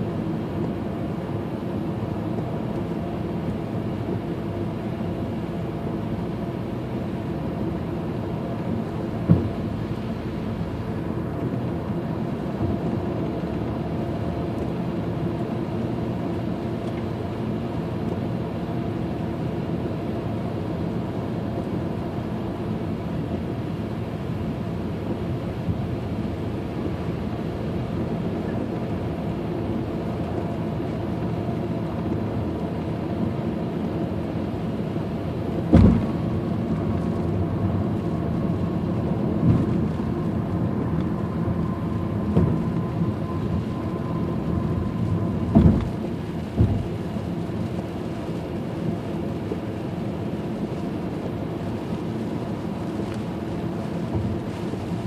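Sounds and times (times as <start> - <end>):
car road and engine noise: 0.0 - 55.0
sharp thump: 35.7 - 36.2.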